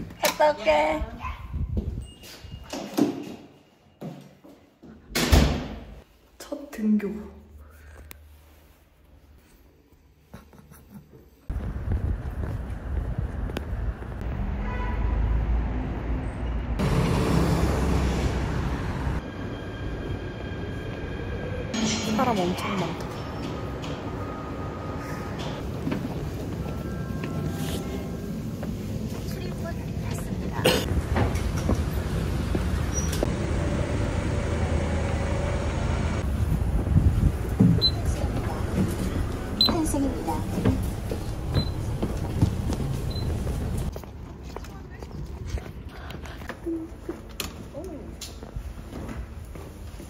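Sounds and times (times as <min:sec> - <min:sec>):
subway train rumbling: 0:11.5 - 0:44.4.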